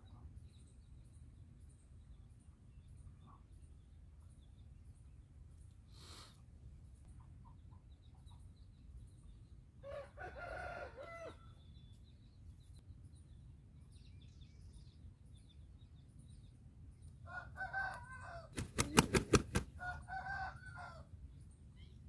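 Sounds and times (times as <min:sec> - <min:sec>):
small birds chirping: 0:00.0 - 0:22.0
rooster crowing: 0:09.8 - 0:11.4, 0:19.8 - 0:21.0.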